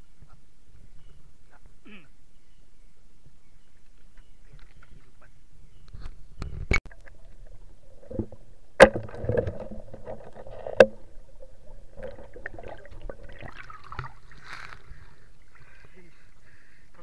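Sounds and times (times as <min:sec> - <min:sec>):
muffled underwater water sound: 0:06.5 - 0:16.2
water splashing: 0:06.9 - 0:16.5.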